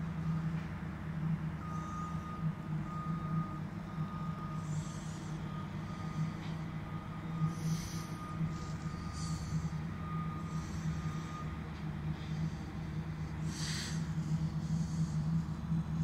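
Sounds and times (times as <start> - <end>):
low engine rumble: 0.0 - 16.0
back-up alarm beeping: 1.6 - 13.4
short hisses: 13.5 - 14.1.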